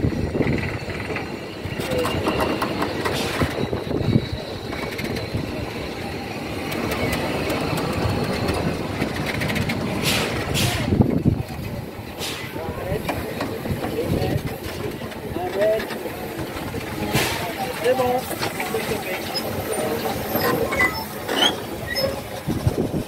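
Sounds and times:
train mechanical rumble: 0:00.0 - 0:23.0.

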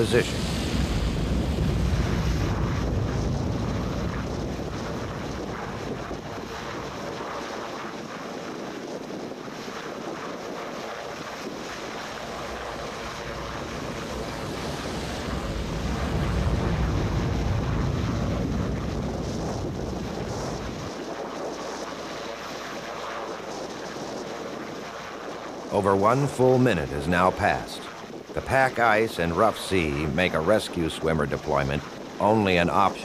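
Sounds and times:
deep rumble: 0:00.0 - 0:06.7, 0:12.0 - 0:21.0
rough sea: 0:00.0 - 0:33.0
rushing wind: 0:00.0 - 0:33.0.

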